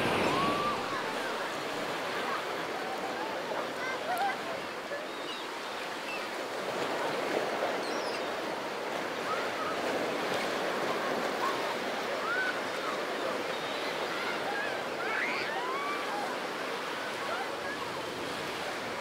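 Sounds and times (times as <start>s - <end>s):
waves washing over pebbles: 0.0s - 4.5s.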